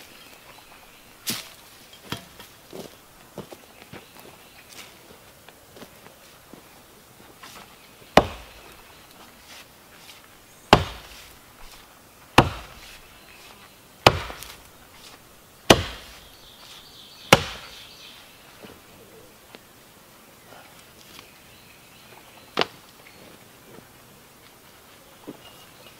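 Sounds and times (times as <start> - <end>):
mattock chopping into soil: 1.2 - 2.9, 8.2 - 8.7, 9.6 - 11.8, 12.4 - 17.8.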